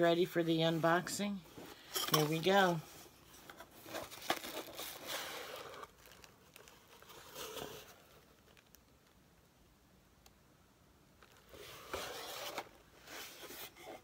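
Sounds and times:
tissue paper crinkling: 3.7s - 8.8s
cardboard box lid scraping: 11.6s - 14.0s.

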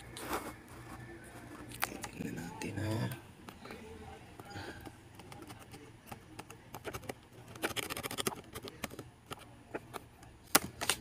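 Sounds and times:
laptop touchpad and keyboard clicks: 4.4s - 11.0s.

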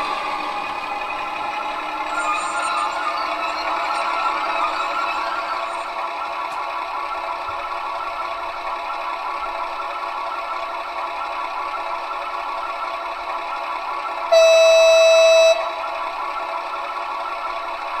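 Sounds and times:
diesel engine idling: 0.0s - 18.0s
locomotive horn: 14.3s - 15.9s.

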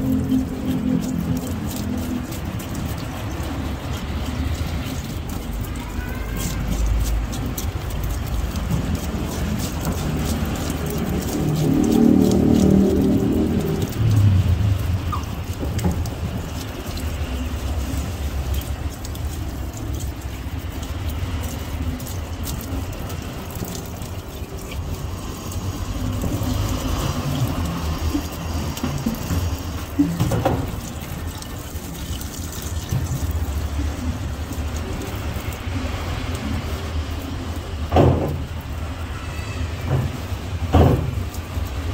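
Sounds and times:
tap water splashing into sink: 0.0s - 41.9s
steady low rumble: 12.1s - 19.0s.

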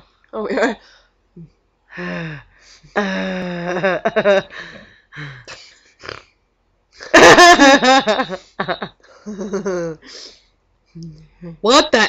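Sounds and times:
girls laughing: 7.0s - 10.0s.

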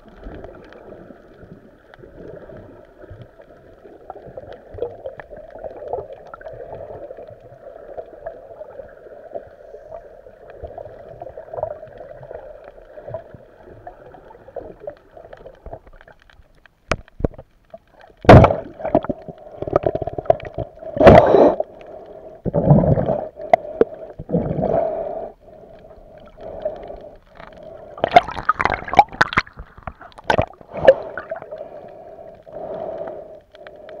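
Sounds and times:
water sloshing against camera: 10.6s - 34.0s
muffled underwater rush: 17.6s - 34.0s.

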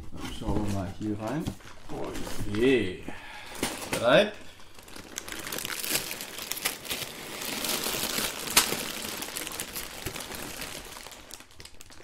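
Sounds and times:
packaging rustling and crinkling: 0.0s - 12.0s.

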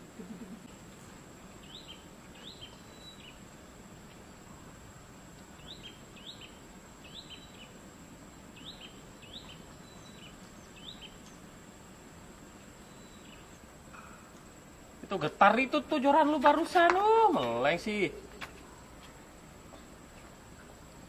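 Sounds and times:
steady background noise: 0.0s - 21.0s
bird calling: 1.6s - 3.5s, 5.6s - 7.8s, 8.6s - 11.5s.

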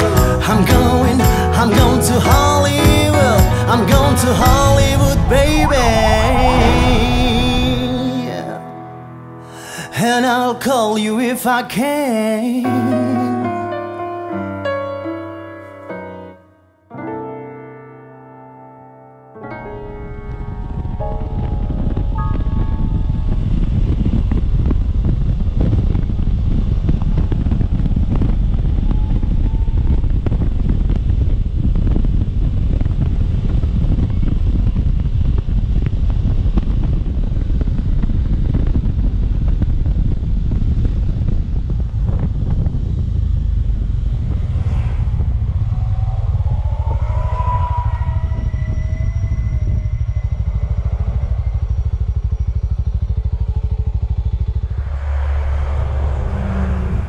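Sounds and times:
wind rushing over microphone: 2.4s - 8.6s, 19.6s - 57.0s
brief wavering whine: 4.2s - 8.8s, 40.5s - 57.0s
motorcycle engine running: 23.4s - 44.6s, 48.4s - 57.0s.

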